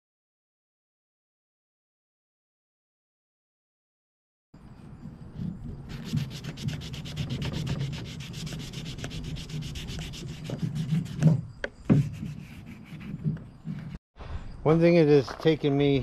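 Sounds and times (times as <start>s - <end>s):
hand sanding wood: 5.0s - 14.0s.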